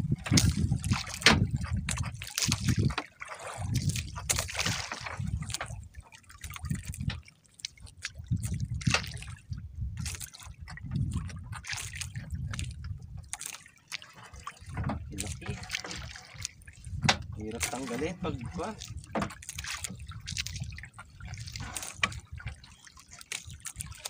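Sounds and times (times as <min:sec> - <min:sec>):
seawater sloshing and dripping: 0:00.0 - 0:24.0
water splashes: 0:00.0 - 0:24.0
low uneven rumble: 0:14.4 - 0:19.4.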